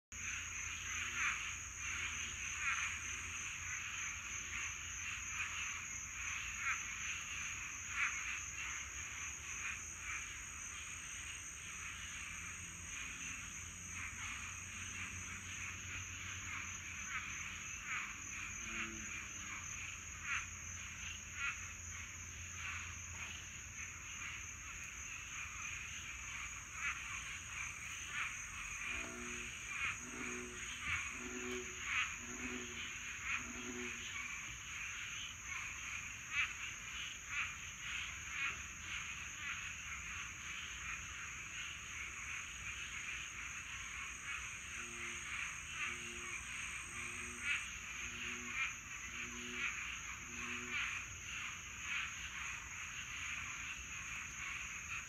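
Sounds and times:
frogs croaking in chorus: 0.1 - 55.0.

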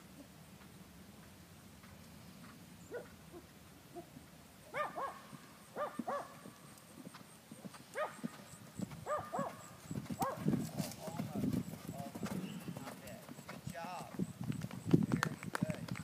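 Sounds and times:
horse hoofbeats on sand: 5.0 - 16.0.

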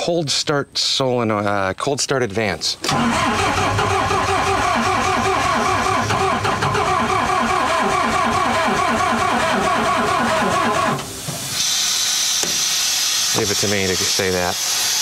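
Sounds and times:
diesel engine cranking: 2.8 - 15.0.

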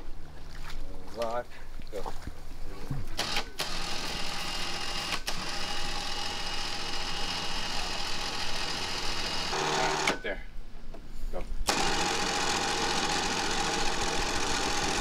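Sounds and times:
winch motor whining: 3.2 - 10.3, 11.7 - 15.0.

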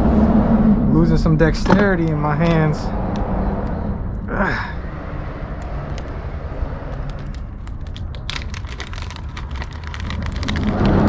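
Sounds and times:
low steady rumble: 0.0 - 11.0
plastic bag crinkling: 7.1 - 11.0.

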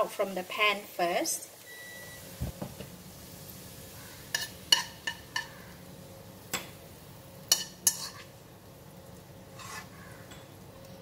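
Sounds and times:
metal spoon clinking against wok: 4.3 - 5.5.

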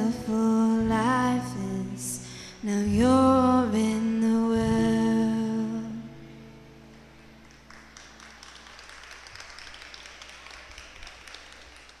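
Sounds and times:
light applause: 6.9 - 12.0.

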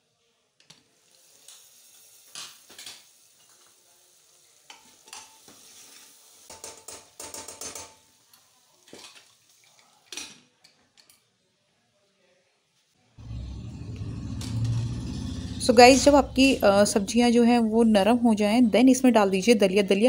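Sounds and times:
vegetables sizzling: 1.0 - 6.7.

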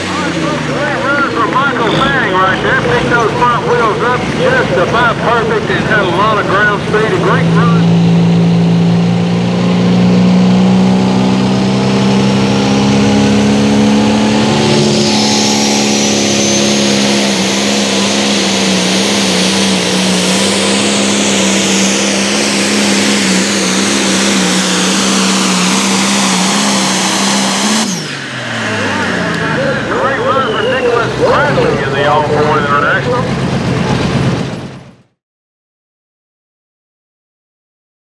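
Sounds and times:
diesel engine under load: 0.0 - 35.2
high whistle climbing: 13.8 - 19.9, 30.0 - 31.1.

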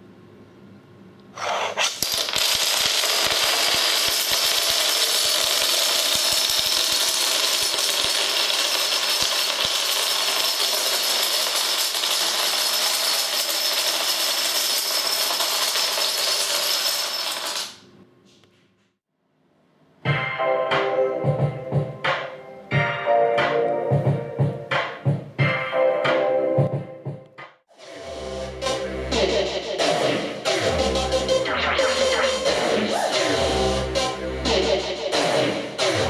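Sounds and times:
dominoes clattering and tumbling: 1.4 - 17.8.

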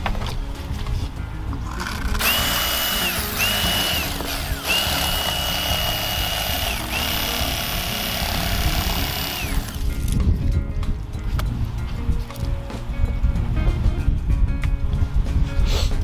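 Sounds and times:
electric knife motor whine: 1.9 - 10.0.

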